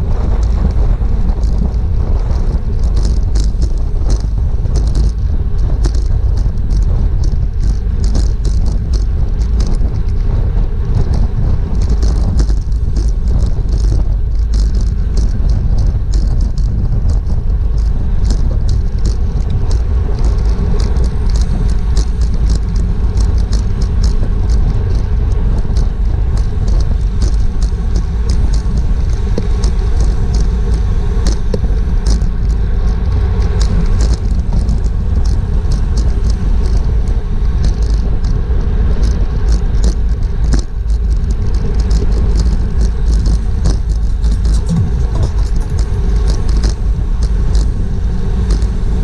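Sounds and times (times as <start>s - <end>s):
wind rumbling on microphone: 0.0s - 49.0s
sharp ticks: 0.2s - 48.8s.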